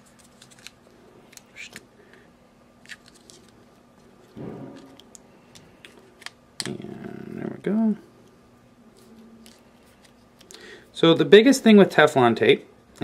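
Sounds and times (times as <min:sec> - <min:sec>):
thread tape crinkling: 0:00.0 - 0:01.8.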